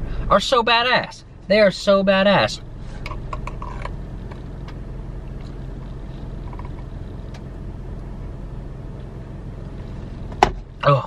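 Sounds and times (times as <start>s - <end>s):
car cabin hum: 0.0s - 11.0s.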